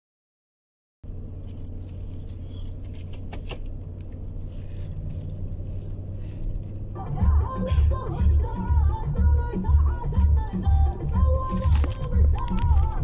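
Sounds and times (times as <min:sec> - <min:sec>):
engine and road noise in car cabin: 0:01.0 - 0:13.0
music with heavy bass beat: 0:07.0 - 0:13.0.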